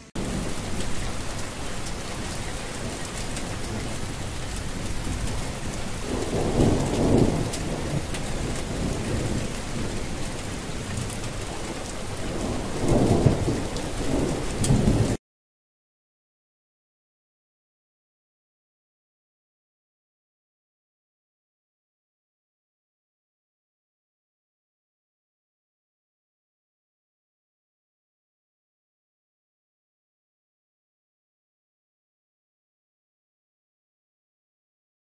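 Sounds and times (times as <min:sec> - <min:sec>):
heavy rain: 0:00.1 - 0:15.2
rolls of thunder: 0:06.0 - 0:15.2.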